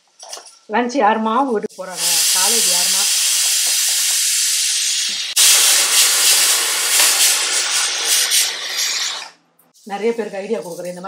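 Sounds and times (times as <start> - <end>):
pressure cooker whistling: 2.0 - 9.4.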